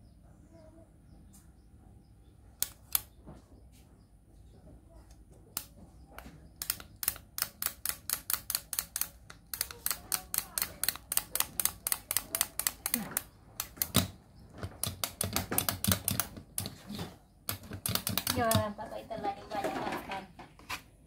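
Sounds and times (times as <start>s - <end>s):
toy mechanism clicking: 2.6s - 3.2s, 5.5s - 18.8s.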